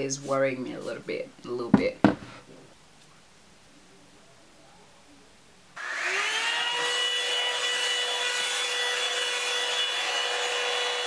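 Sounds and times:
hair dryer brush motor whine: 5.8s - 11.0s.

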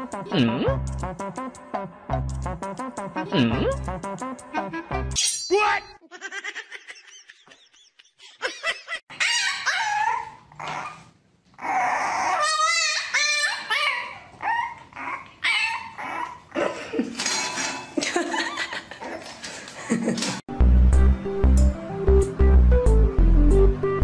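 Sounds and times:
puppy whining and yipping: 9.1s - 16.6s.

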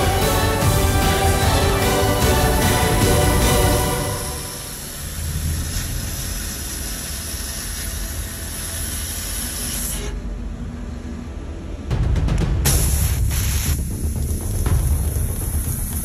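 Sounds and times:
laser cutter hissing: 4.0s - 10.3s.

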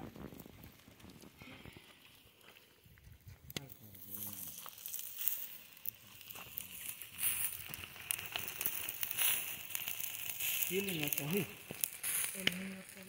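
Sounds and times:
wood fire crackling: 0.0s - 13.0s
plastic wrapping crinkling: 3.7s - 13.0s.

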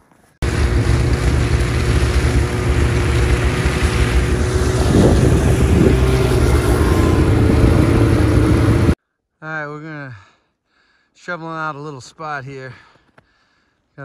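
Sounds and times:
snowmobile engine drone: 0.4s - 9.0s
track and wind rush: 0.4s - 9.0s.

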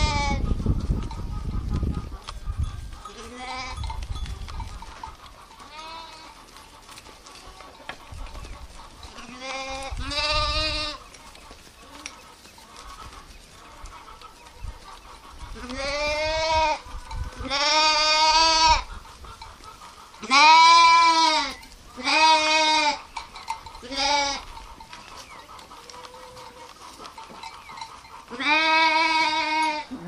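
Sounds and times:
sheep bleating: 3.1s - 3.9s, 5.6s - 6.4s, 9.2s - 11.0s, 15.6s - 16.8s, 17.4s - 18.9s, 20.2s - 23.1s, 23.8s - 24.5s, 28.3s - 30.0s.

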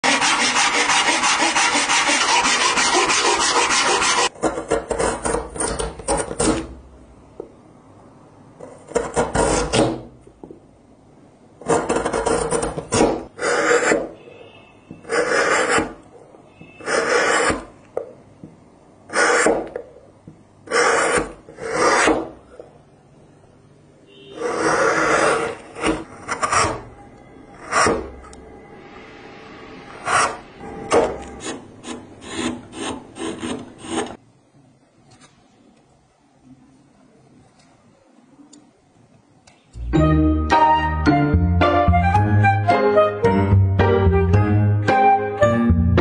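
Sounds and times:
chisel paring wood: 0.0s - 6.7s, 8.6s - 10.1s, 11.6s - 14.1s, 20.7s - 22.4s, 24.4s - 26.8s, 30.9s - 34.2s.

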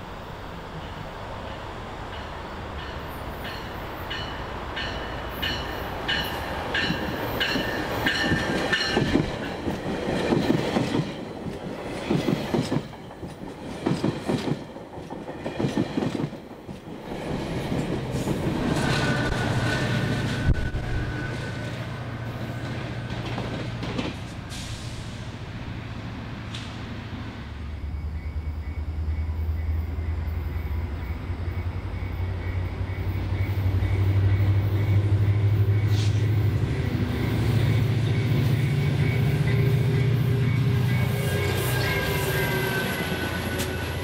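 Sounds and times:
diesel locomotive drone: 0.0s - 44.0s
train bell ringing: 0.8s - 9.6s, 37.4s - 44.0s
train wheels clickety-clack: 0.8s - 21.8s, 22.4s - 25.3s, 26.5s - 26.9s, 31.9s - 44.0s.

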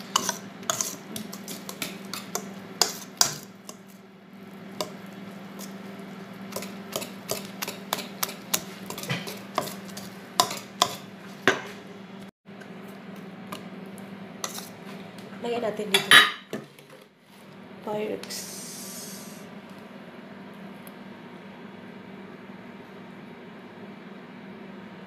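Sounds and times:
whisk wires tapping against bowl: 0.0s - 4.0s, 6.5s - 11.7s
wet stirring of batter: 0.0s - 11.3s, 12.8s - 14.9s.

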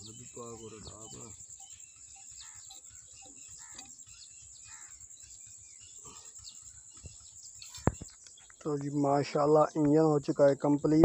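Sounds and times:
high-pitched insect drone: 0.0s - 8.2s
bird chirps: 0.0s - 11.0s.

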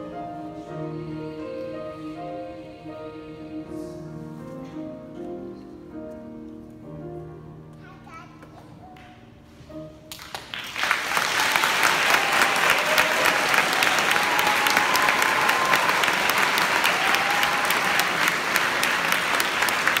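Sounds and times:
audience applause: 10.1s - 20.0s.

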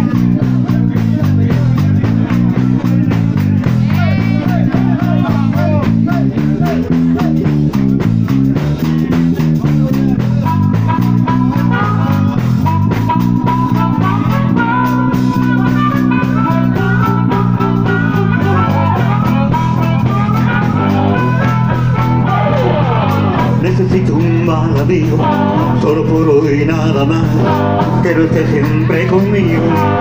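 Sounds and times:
electric guitars playing low riff: 0.0s - 30.0s
harmonica holding long notes: 10.5s - 30.0s.

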